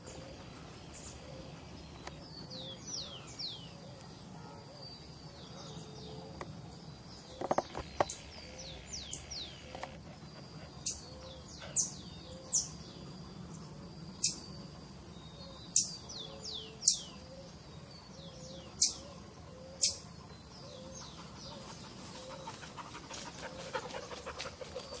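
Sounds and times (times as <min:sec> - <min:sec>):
high-pitched marmoset calls: 0:14.2 - 0:14.4, 0:15.7 - 0:15.9, 0:18.8 - 0:19.0, 0:19.8 - 0:20.0.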